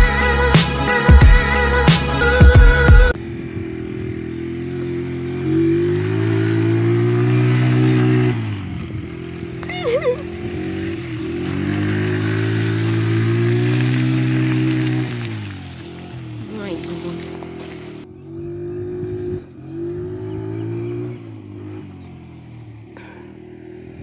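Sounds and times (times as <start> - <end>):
intro music: 0.0 - 3.2
quad engine revving: 0.0 - 24.0.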